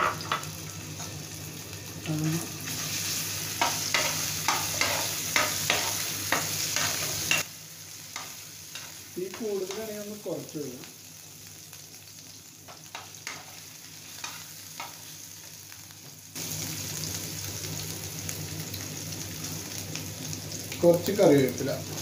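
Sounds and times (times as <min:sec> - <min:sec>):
paste sizzling in hot oil: 0:00.0 - 0:22.0
metal spoon scraping pan: 0:03.6 - 0:07.4.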